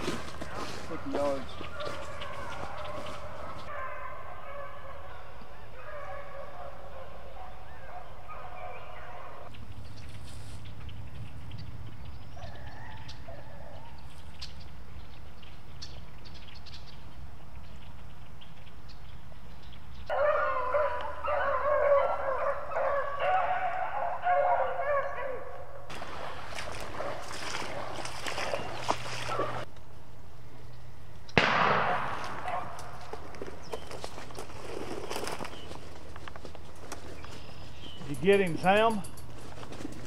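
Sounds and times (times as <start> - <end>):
footsteps crunching dry leaves: 0.0 - 3.7, 10.0 - 10.7, 25.9 - 29.7, 32.2 - 38.4
beagles baying: 0.0 - 9.5, 20.1 - 29.7, 31.4 - 40.0.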